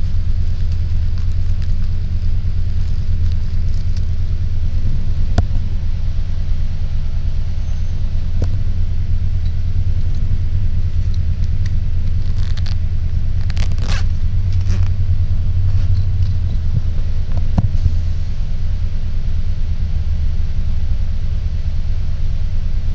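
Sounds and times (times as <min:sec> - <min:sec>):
bus engine idling: 0:00.0 - 0:22.9
rustling scrapes: 0:13.4 - 0:15.0, 0:15.6 - 0:17.0.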